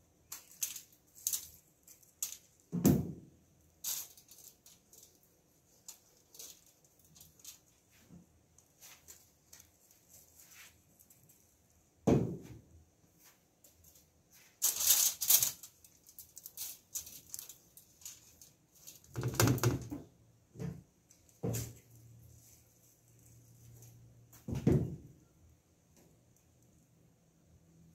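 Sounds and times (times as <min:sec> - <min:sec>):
thump: 0:12.0 - 0:12.6, 0:24.5 - 0:25.1
crackling rattling bursts: 0:14.6 - 0:19.7.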